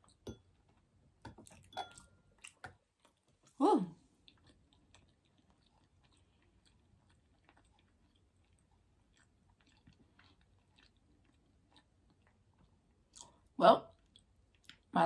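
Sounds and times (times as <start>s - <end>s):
faint chewing clicks: 4.2s - 14.9s.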